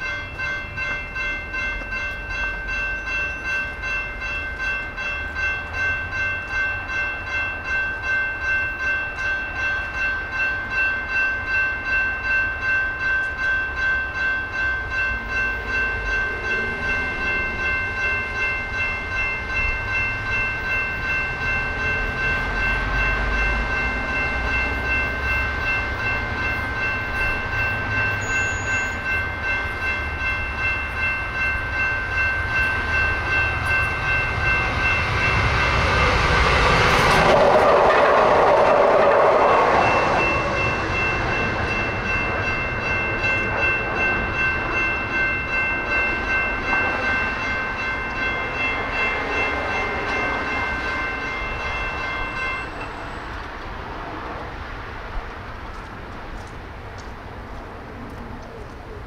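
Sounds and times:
railroad crossing bells ringing: 0.0 - 59.0
train rumble: 0.0 - 59.0.

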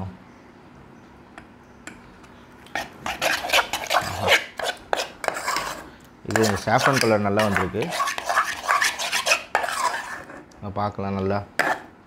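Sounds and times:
metal spoon scraping a pot: 2.7 - 10.5, 11.6 - 11.9.

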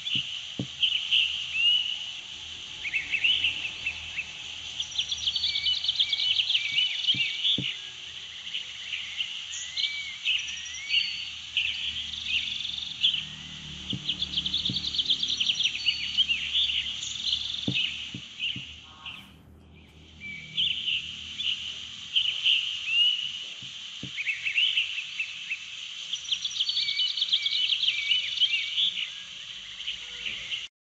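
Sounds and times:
birds chirping: 0.0 - 30.7.

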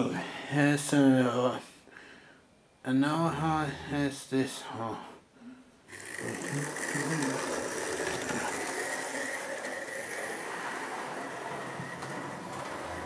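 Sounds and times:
toy train motor whirring: 5.9 - 13.0.

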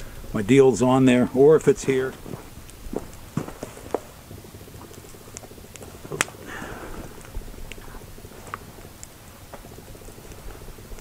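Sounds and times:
campfire crackling and popping: 0.0 - 11.0.

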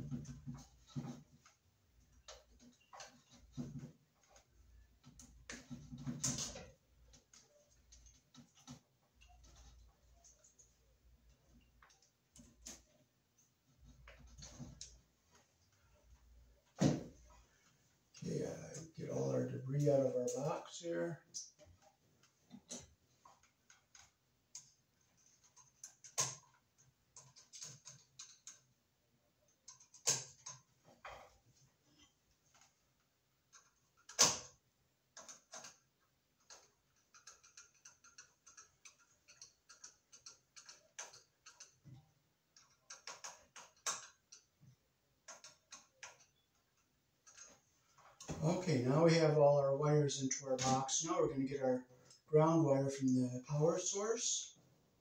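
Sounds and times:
cable and tool clicking and scraping: 21.3 - 28.7, 33.5 - 48.4.

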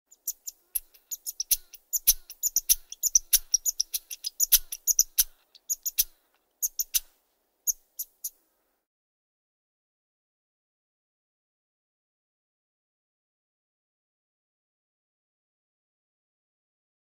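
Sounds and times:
marmots whistling: 0.1 - 7.1.

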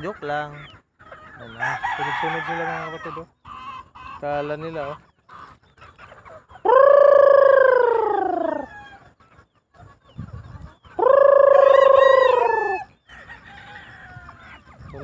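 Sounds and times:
rooster crowing: 1.4 - 3.2, 6.7 - 9.0, 11.0 - 14.4.

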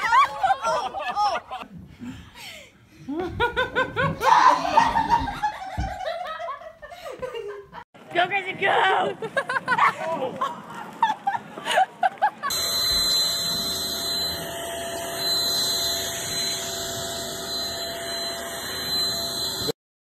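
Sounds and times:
handheld vacuum cleaner whining: 12.5 - 19.8.

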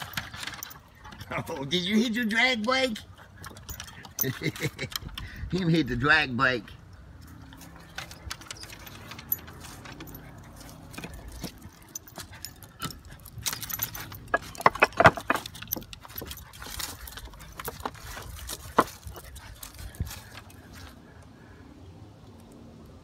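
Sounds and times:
dog paws clicking: 7.1 - 21.2
dog collar tag jingling: 7.3 - 20.7.

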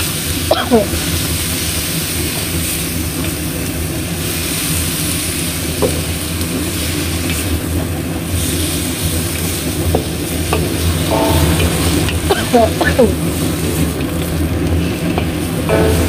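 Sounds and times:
food sizzling in a wok: 0.0 - 16.0
low rumble: 10.9 - 14.0.

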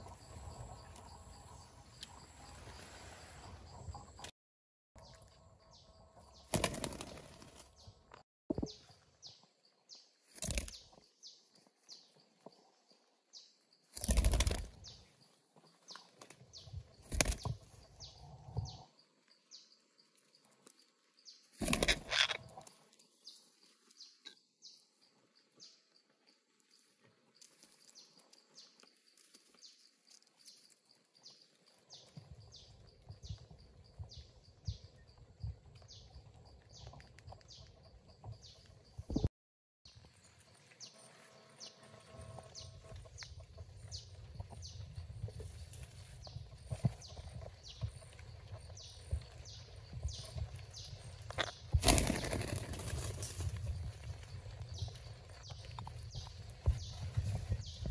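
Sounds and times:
wings flapping: 6.4 - 7.7, 10.3 - 10.8, 13.9 - 15.0, 17.0 - 17.7, 21.5 - 22.6, 51.4 - 53.7.

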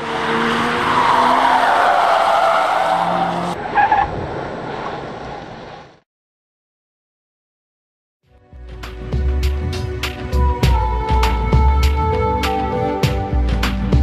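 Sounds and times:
car tyres screeching: 0.0 - 5.9
car engine: 0.0 - 6.0.

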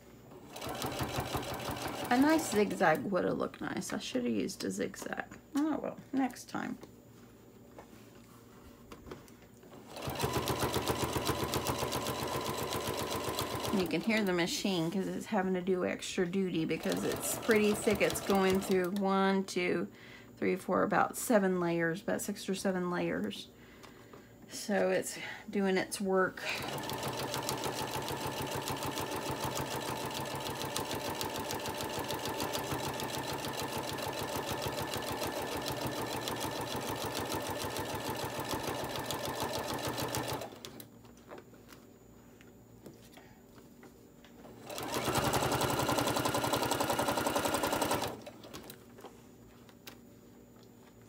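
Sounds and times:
electric sewing machine stitching: 0.4 - 2.8, 9.8 - 14.3, 16.7 - 19.0, 26.4 - 40.8, 44.6 - 48.8.

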